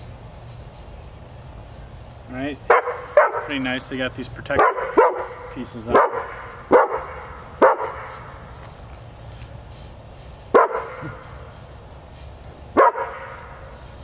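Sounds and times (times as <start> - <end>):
dog barking: 2.7 - 3.5, 4.6 - 8.1, 10.5 - 11.2, 12.8 - 13.4.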